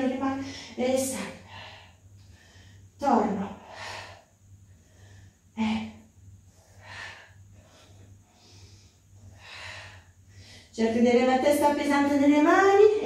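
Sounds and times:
woman breathing hard: 0.4 - 10.8.

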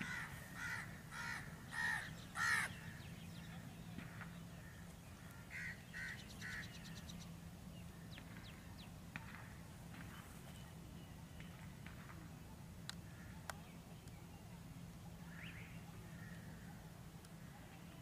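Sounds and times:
crow cawing: 0.0 - 2.7, 4.6 - 6.7, 16.2 - 16.7
faint bird chirps and clicks: 12.8 - 14.6.

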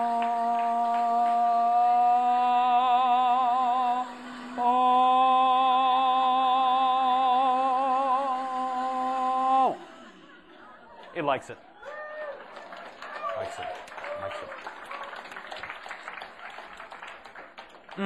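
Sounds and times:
man singing with vibrato: 0.0 - 10.4.

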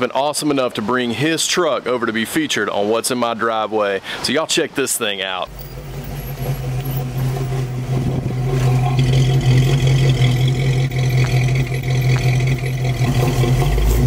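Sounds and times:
pickup truck engine running: 5.5 - 14.0.

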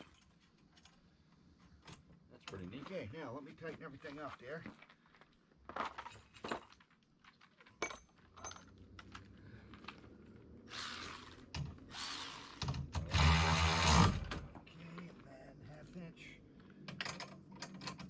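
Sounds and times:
cordless drill bursts: 10.7 - 14.4
bolts clicking as handled: 16.9 - 18.0.

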